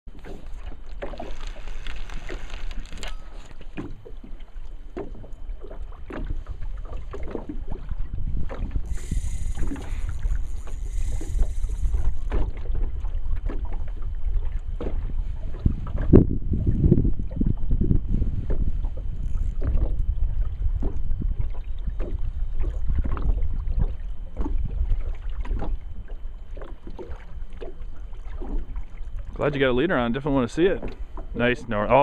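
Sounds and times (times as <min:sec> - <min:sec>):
waves slapping against boat: 0:00.1 - 0:32.0
wind buffeting microphone: 0:06.0 - 0:27.2.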